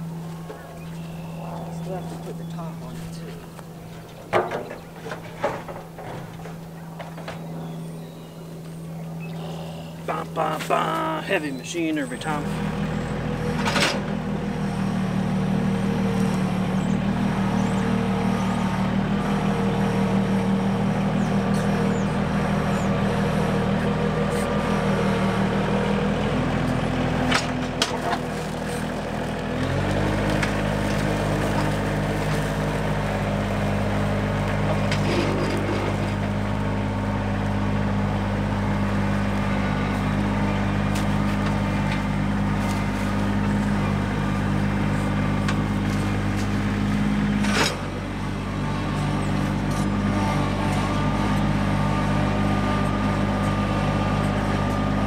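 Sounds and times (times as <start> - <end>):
tractor engine running: 0.0 - 55.0.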